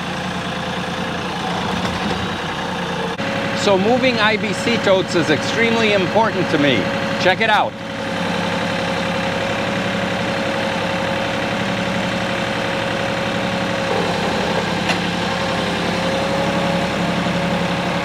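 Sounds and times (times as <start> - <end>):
tractor diesel engine running: 0.0 - 18.0
steady whine: 13.7 - 18.0.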